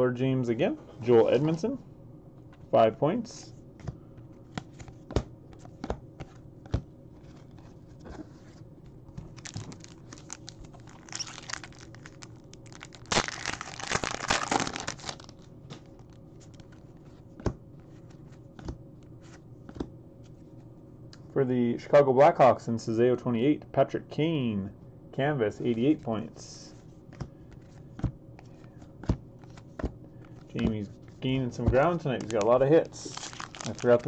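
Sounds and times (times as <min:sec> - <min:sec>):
wrapper tearing and crinkling: 0:09.3 - 0:16.7, 0:32.2 - 0:34.0.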